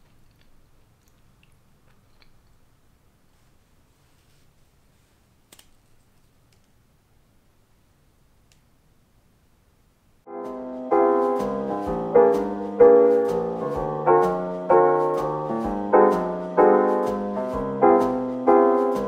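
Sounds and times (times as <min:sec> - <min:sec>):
background piano music: 0:10.3 - 0:19.0.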